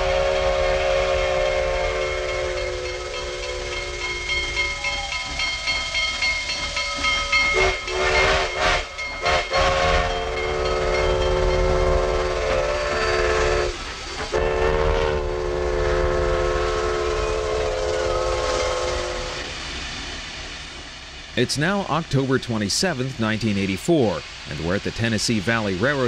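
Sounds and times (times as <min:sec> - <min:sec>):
steam whistle blasts: 0:00.0 - 0:19.6
steam exhaust chuffs: 0:00.0 - 0:26.0
train noise: 0:00.0 - 0:26.0.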